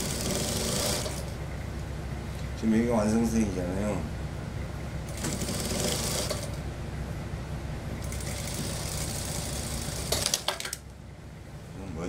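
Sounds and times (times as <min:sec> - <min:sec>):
sewing machine running: 0:00.0 - 0:01.4, 0:05.1 - 0:06.6, 0:08.0 - 0:10.8.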